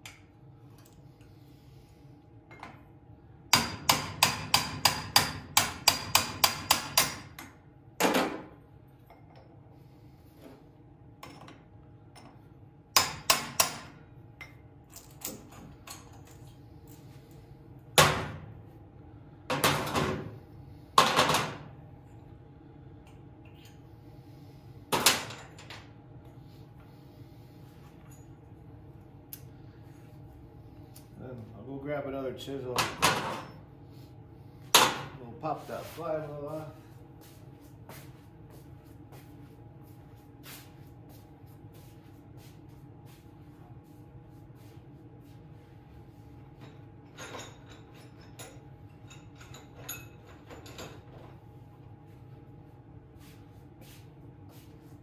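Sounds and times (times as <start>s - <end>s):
hammer striking metal chisel: 3.5s - 7.6s, 13.0s - 14.0s.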